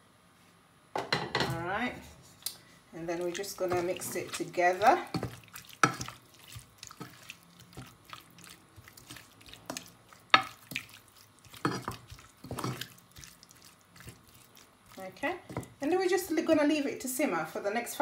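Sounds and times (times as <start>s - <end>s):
wooden spatula scraping pot: 3.0s - 16.9s.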